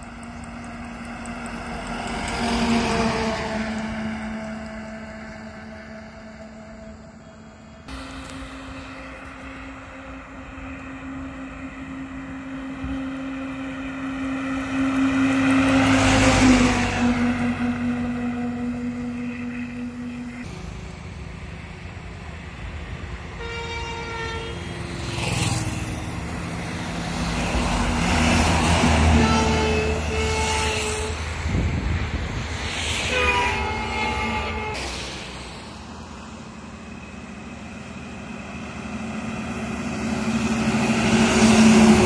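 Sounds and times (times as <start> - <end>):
diesel trucks driving past: 0.0 - 23.4, 24.0 - 42.0
vehicle horn: 23.4 - 24.7, 29.1 - 31.2, 33.1 - 34.8.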